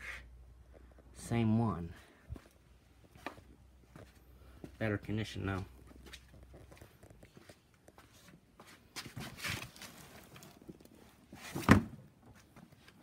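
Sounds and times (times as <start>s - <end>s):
footsteps: 2.2s - 11.5s.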